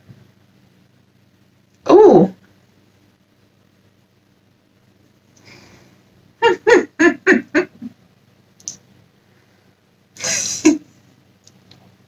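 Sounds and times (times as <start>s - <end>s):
woman laughing: 6.4s - 8.0s, 10.2s - 10.9s.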